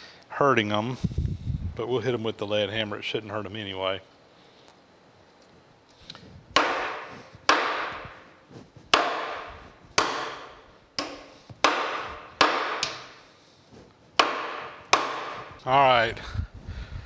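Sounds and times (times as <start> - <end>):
hammer striking steel nuts: 6.6 - 13.2, 14.2 - 15.6.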